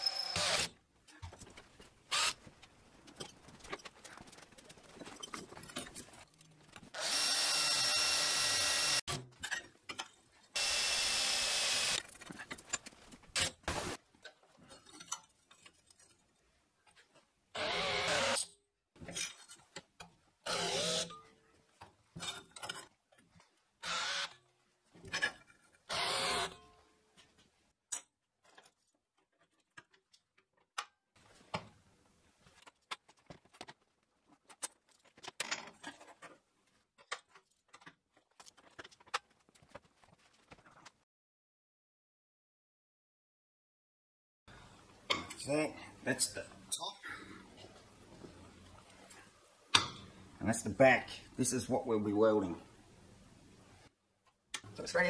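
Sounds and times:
electric drill boring steel: 0.0s - 0.7s, 7.0s - 9.0s, 10.6s - 12.0s, 17.6s - 18.4s, 20.5s - 21.1s, 25.9s - 26.5s.

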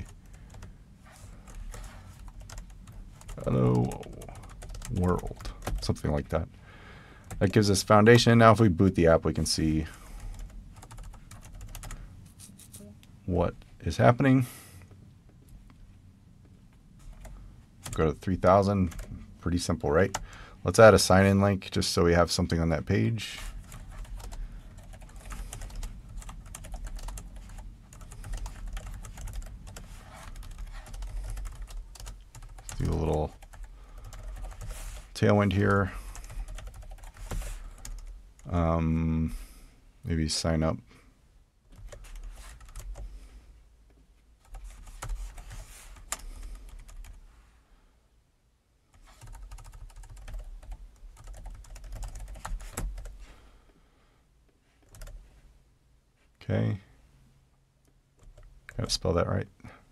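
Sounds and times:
computer keyboard typing: 0.0s - 0.7s, 1.4s - 6.0s, 10.2s - 12.0s, 18.8s - 19.1s, 23.6s - 35.1s, 35.7s - 38.5s, 41.8s - 43.0s, 44.4s - 47.2s, 48.9s - 53.2s, 54.8s - 55.2s.

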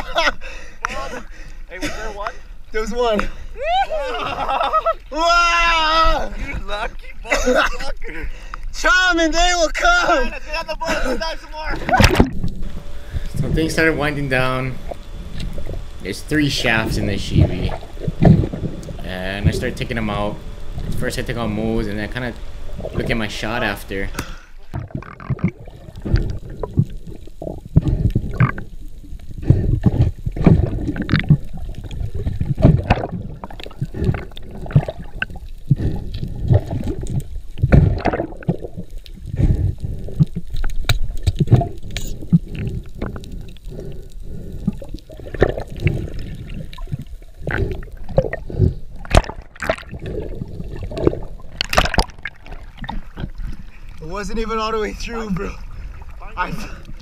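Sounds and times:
water sloshing: 11.8s - 57.0s
muffled underwater knocks and thumps: 11.9s - 13.9s, 16.8s - 21.1s, 24.7s - 28.7s, 29.4s - 43.2s, 45.2s - 53.8s.

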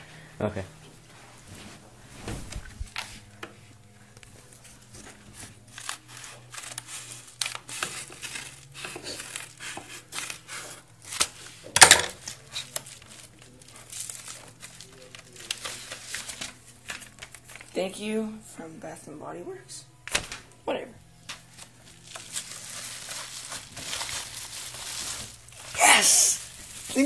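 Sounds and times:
scissors snipping paper mailer: 5.4s - 17.7s
envelope rustling: 12.2s - 17.7s, 21.3s - 27.0s.

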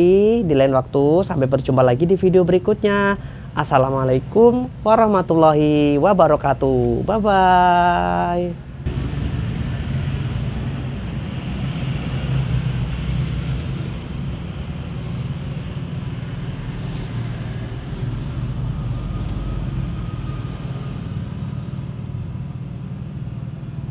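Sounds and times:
road traffic rumble: 0.0s - 23.9s
motor vehicle running nearby: 8.8s - 23.9s.

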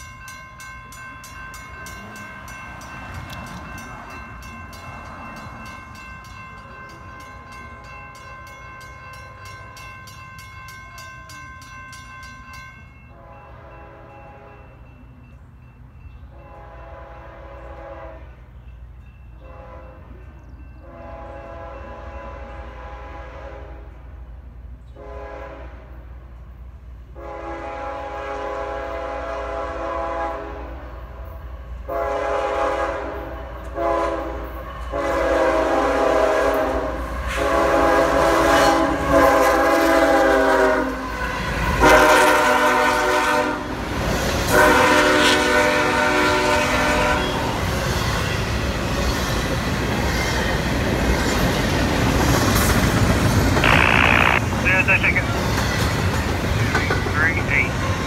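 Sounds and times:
locomotive engine and wheels rumbling: 0.0s - 22.6s, 33.2s - 58.0s
rail cars rolling: 0.0s - 58.0s
locomotive air horn blasts: 16.4s - 18.4s, 19.4s - 20.0s, 20.8s - 23.9s, 25.0s - 25.9s, 27.2s - 30.8s, 31.9s - 41.1s, 41.8s - 43.8s, 44.5s - 47.6s.

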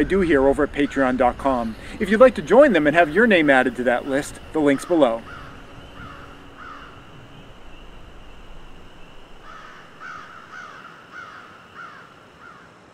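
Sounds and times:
bird calling: 0.0s - 12.8s.

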